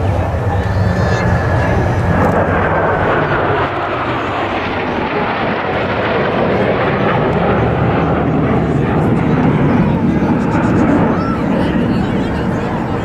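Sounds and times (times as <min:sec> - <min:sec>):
jet whine falling in pitch: 0:00.0 - 0:05.8
jet roar: 0:00.0 - 0:13.0.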